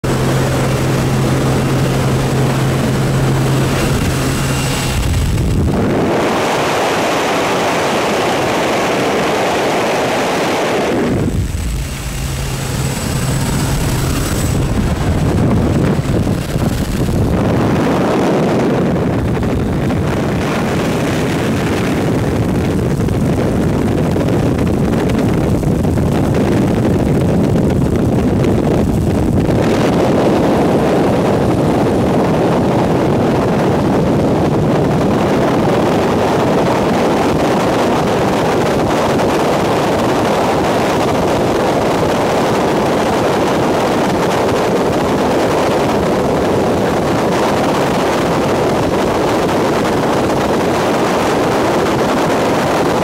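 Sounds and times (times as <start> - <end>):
propeller engine drone: 0.0 - 53.0
wind buffeting microphone: 0.0 - 53.0
wind rushing past plane door: 0.6 - 7.0.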